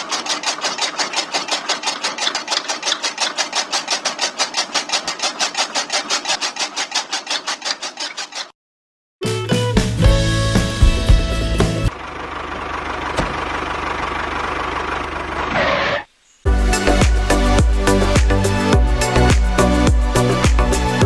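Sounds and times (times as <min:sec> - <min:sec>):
chaff cutter chopping grass: 0:00.0 - 0:08.6
music: 0:09.2 - 0:11.9, 0:16.5 - 0:21.0.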